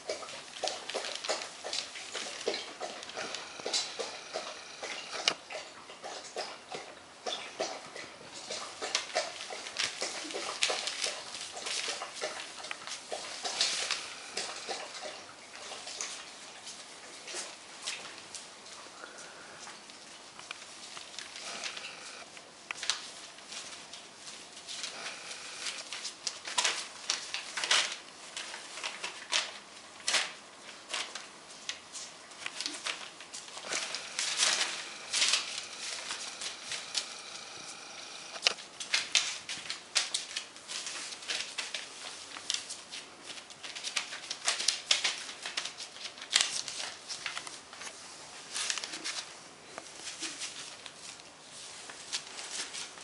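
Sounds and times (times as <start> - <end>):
newspaper crinkling under paws: 0.0 - 5.4, 8.4 - 53.0.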